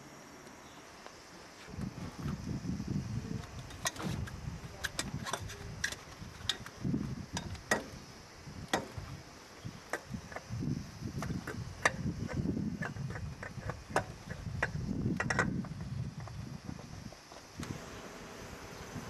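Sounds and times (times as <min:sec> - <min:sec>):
tool clicks and knocks on engine: 0:08.7 - 0:09.0, 0:11.2 - 0:15.8.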